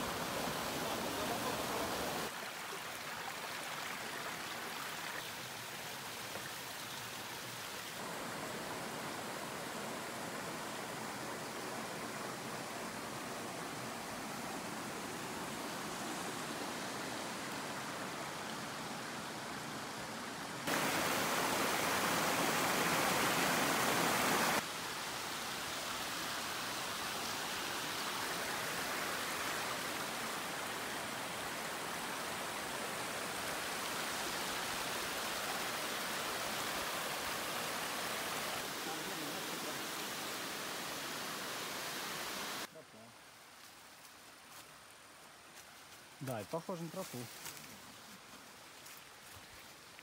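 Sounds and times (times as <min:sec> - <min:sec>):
water rushing in rocky stream: 0:20.7 - 0:24.6.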